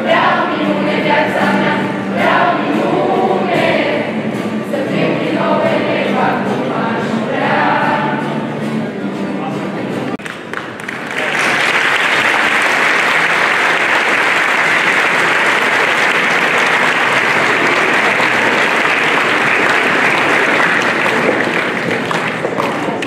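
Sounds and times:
large audience clapping: 10.2 - 23.0.

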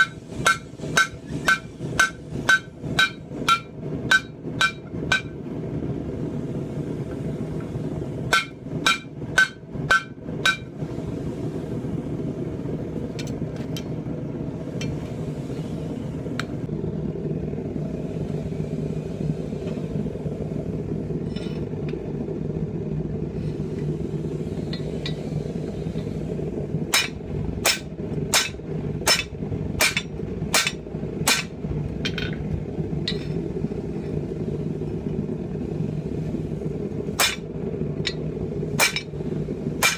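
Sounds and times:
hammer striking steel anvil: 0.0 - 5.4, 8.3 - 10.7, 26.9 - 32.4, 37.2 - 37.5, 38.8 - 39.1
steady low drone: 0.0 - 39.9.

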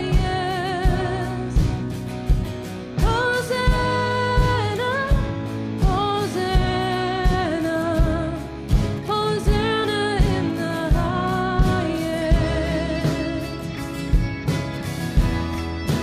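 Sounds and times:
band with steady drum beat: 0.0 - 16.0
person singing: 3.0 - 13.8.

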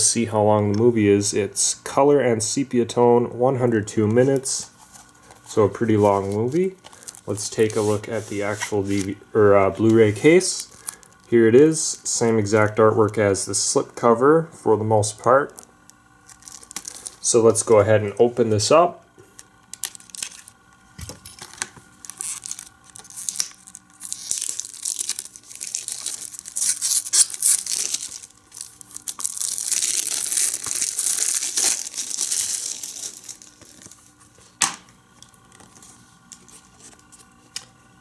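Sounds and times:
plastic wrap crinkling and tearing: 6.0 - 9.2, 10.5 - 11.3, 15.3 - 17.3, 19.4 - 20.6, 21.4 - 34.3
knife cutting plastic wrap: 21.5 - 34.0.

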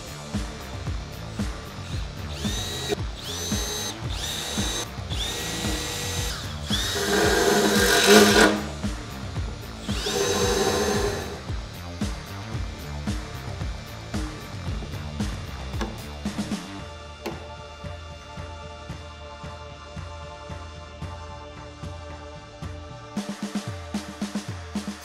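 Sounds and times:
background music with steady beat: 0.0 - 25.0
electric drill whining: 1.7 - 11.5.

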